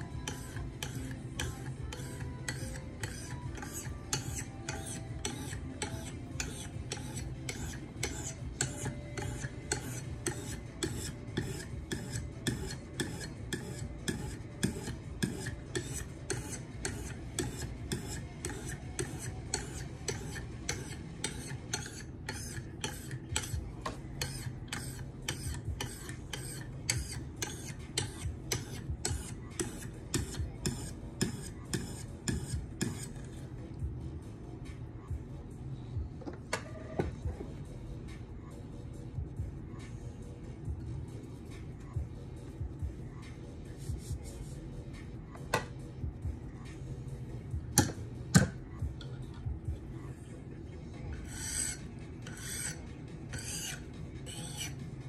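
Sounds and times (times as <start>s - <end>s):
sharpening stone scraping knife edge: 0.0s - 33.3s, 51.2s - 54.8s.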